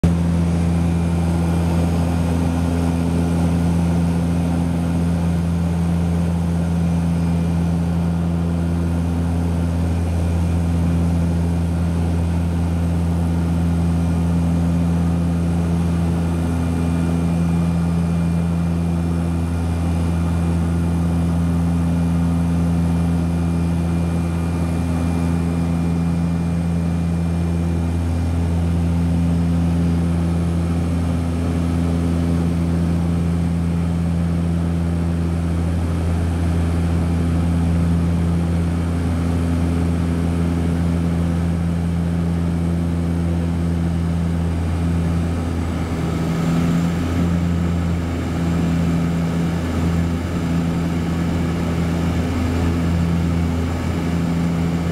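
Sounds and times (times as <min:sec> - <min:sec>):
propeller plane engine drone: 0:00.0 - 0:54.9.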